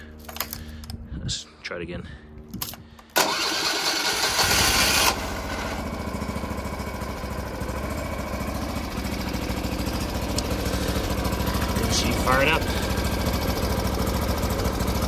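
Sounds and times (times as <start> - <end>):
small gasoline engine starting: 3.2 - 6.6.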